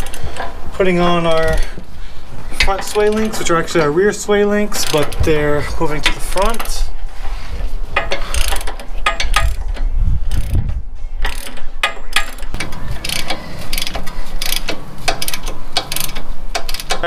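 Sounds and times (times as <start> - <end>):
socket ratchet clicking: 8.0 - 9.7, 10.3 - 10.6, 11.2 - 17.0.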